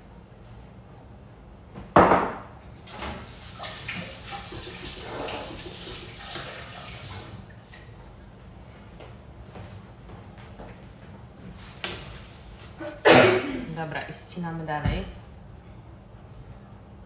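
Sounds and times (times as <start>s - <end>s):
water running from a tap: 2.9s - 7.8s.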